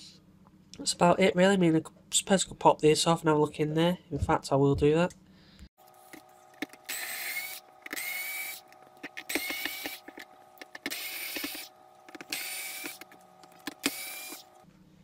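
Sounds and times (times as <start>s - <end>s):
cordless power driver whining: 5.8s - 14.7s
screws clicking and rattling: 6.6s - 14.5s.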